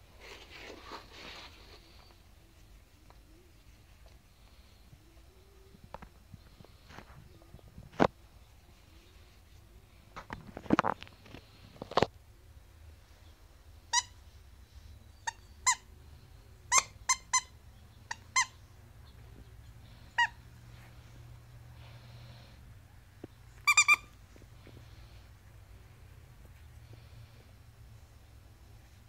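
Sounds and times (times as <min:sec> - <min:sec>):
toys and blanket rustling: 0:00.0 - 0:12.2
dog toy squeaking: 0:13.9 - 0:14.2, 0:15.2 - 0:15.8, 0:16.7 - 0:18.6, 0:20.1 - 0:20.4, 0:23.6 - 0:24.2.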